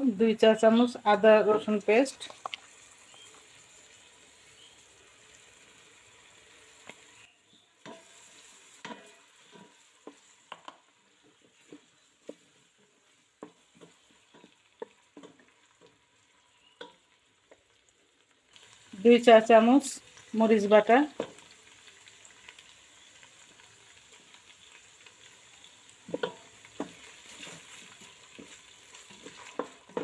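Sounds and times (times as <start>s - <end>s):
faint sizzle of frying: 0.0s - 30.0s
spatula scraping and knocking pot: 8.8s - 12.5s, 26.1s - 30.0s.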